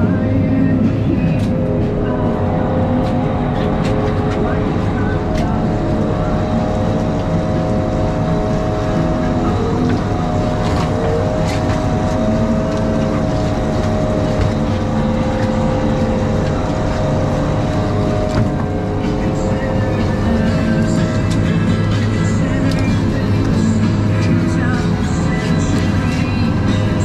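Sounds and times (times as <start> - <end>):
boat engine droning: 0.0 - 27.0.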